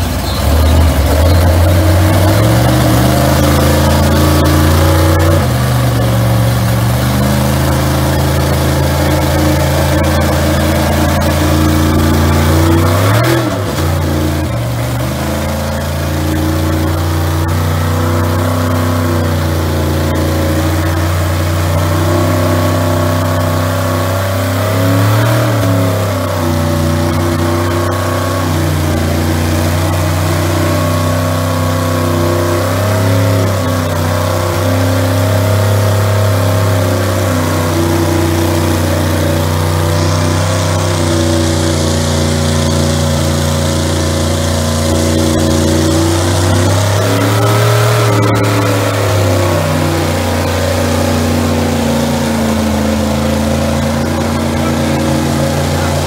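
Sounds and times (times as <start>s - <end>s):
truck engines running under load: 0.0s - 56.0s.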